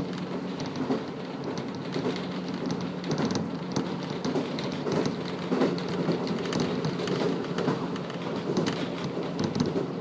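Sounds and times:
diesel engine drone: 0.0s - 10.0s
small clicks and rattles: 0.0s - 10.0s
wheels on rails: 0.0s - 10.0s.

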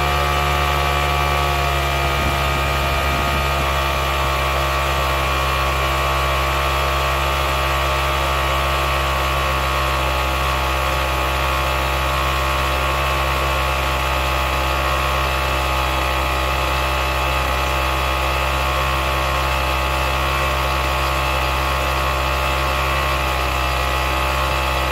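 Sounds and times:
generator engine running steadily: 0.0s - 24.9s.

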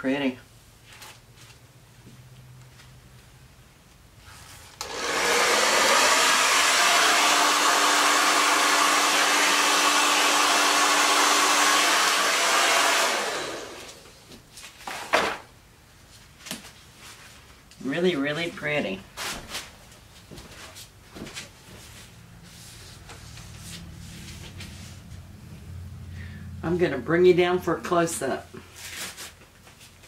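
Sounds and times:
hair dryer running: 4.8s - 14.3s.

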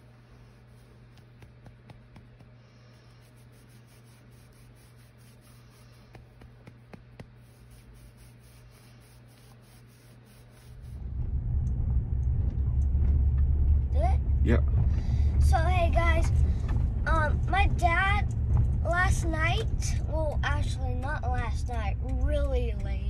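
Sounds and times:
hand rubbing skin and bedding: 0.0s - 11.0s
steady low hum: 0.0s - 23.0s
car interior rumble: 11.0s - 23.0s.

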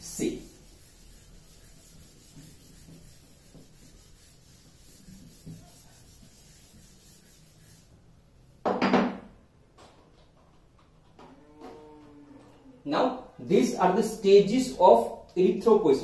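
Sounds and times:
duster rubbing chalkboard: 0.0s - 8.0s.

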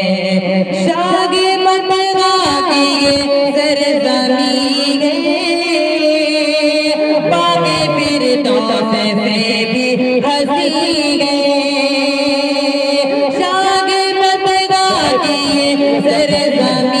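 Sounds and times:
man singing into a microphone: 2.2s - 5.8s, 7.0s - 17.0s.

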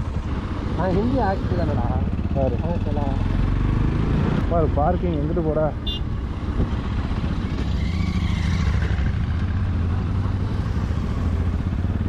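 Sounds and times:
motorcycle engine running at low revs: 0.0s - 12.0s.

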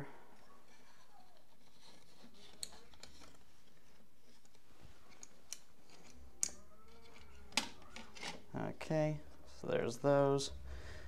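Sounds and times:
plastic clicks and rustles: 0.7s - 8.5s.

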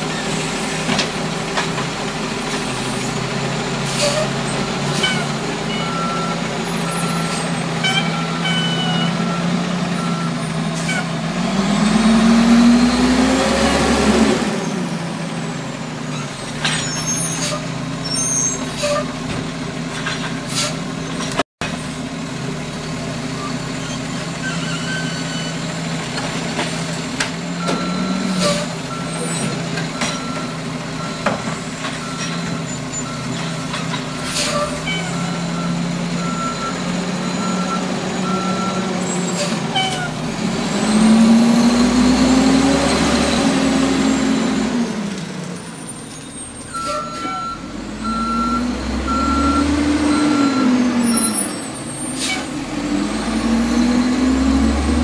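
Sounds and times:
garbage truck diesel engine: 0.0s - 55.0s
backup alarm beeping: 46.8s - 50.8s.

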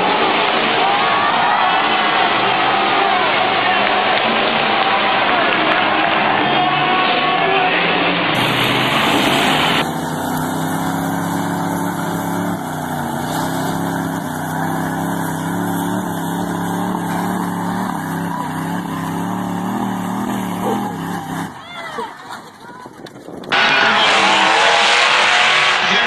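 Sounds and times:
arena crowd din: 0.0s - 26.0s
truck engines revving high: 7.9s - 26.0s.

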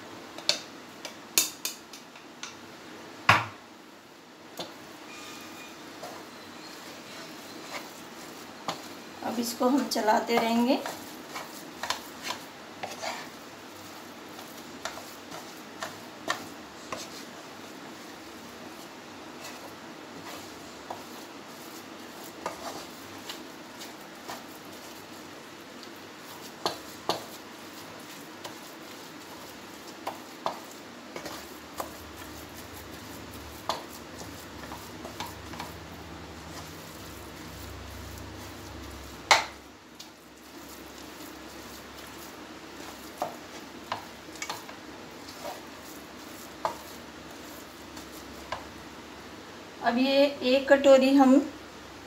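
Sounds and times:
steady sizzle: 0.0s - 52.0s
spatula scraping a pan: 4.6s - 48.8s
spatula knocking on a pan: 26.5s - 27.4s, 33.6s - 35.8s, 39.1s - 39.6s.

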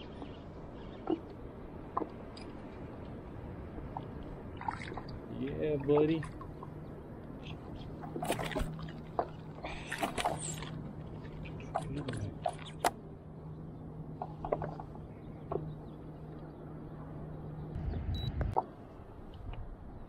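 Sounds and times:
steady low hum: 6.2s - 20.0s.

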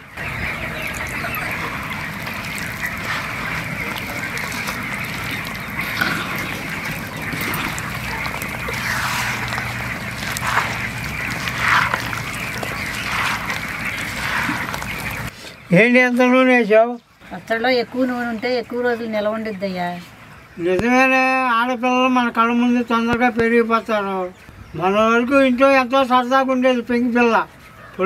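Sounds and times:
hands squelching wet food: 0.0s - 15.7s.

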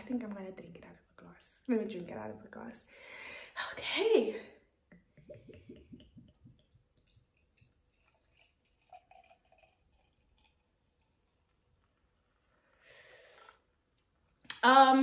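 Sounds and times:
liquid pouring into a glass: 5.0s - 12.5s.

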